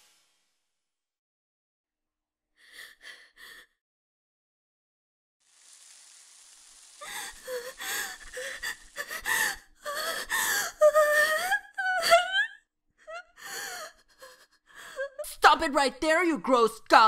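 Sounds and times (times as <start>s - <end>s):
faint hiss: 5.4s - 9.3s
woman gasping: 7.0s - 12.4s.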